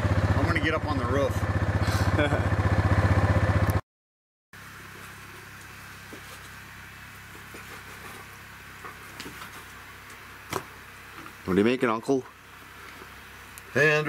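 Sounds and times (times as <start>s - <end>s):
vehicle engine running: 0.0s - 3.8s, 4.6s - 14.0s.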